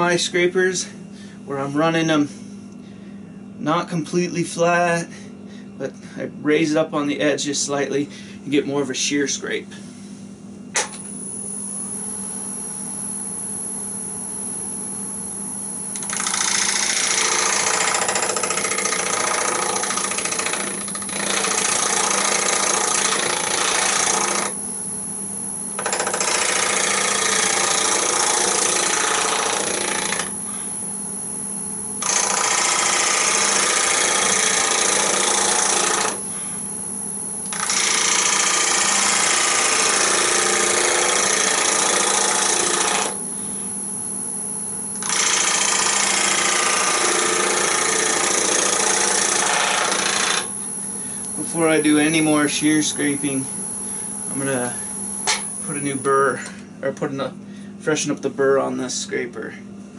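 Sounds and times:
scraper cutting spinning wood: 16.0s - 24.6s, 32.0s - 36.2s, 37.5s - 43.3s, 45.0s - 50.6s
wood lathe humming: 16.0s - 24.6s, 25.8s - 30.8s, 32.0s - 36.7s, 37.5s - 43.4s, 45.0s - 56.1s.

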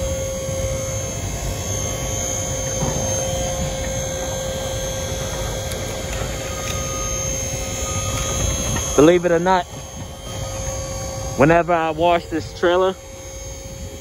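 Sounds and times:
hydraulic pump humming: 0.0s - 14.0s.

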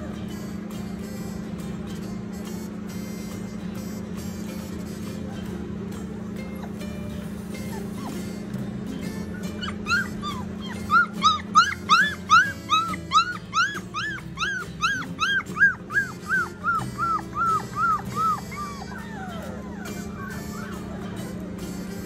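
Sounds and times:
puppy whining cries: 6.2s - 22.0s.

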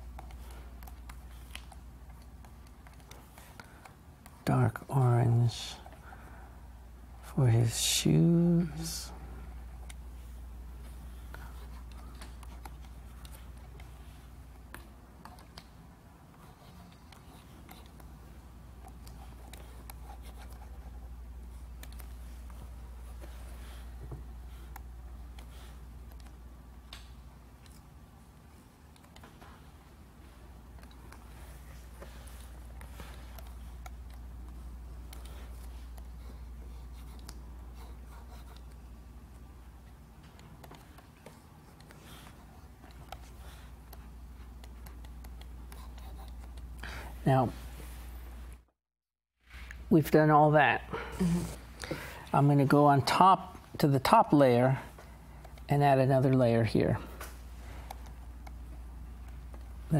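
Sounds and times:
steady low hum: 0.0s - 48.7s, 49.4s - 59.9s.

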